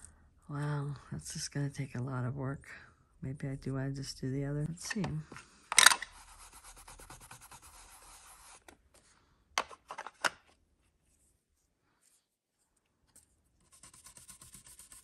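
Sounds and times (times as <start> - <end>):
ink tool scraping paper: 6.1 - 8.7
ink tool rubbing on paper: 6.2 - 8.6, 13.7 - 15.0.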